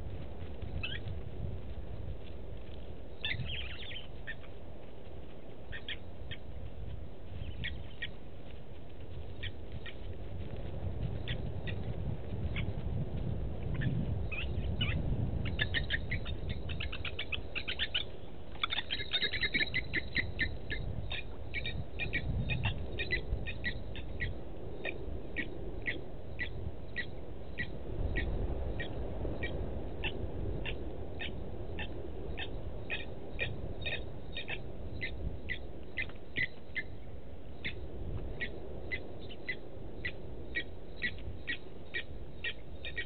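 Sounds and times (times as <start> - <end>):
lapwing metallic alarm calls: 0.8 - 1.0, 3.2 - 4.5, 5.7 - 6.4, 7.4 - 8.2, 13.8 - 37.0, 37.6 - 37.8, 38.4 - 43.0.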